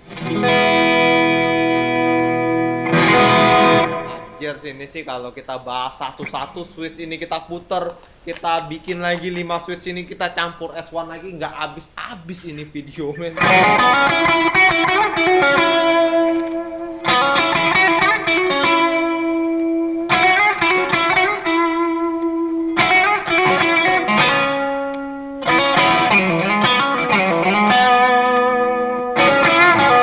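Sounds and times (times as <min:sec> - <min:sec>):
electric guitar lead melody: 0:00.0 - 0:04.4, 0:13.4 - 0:30.0.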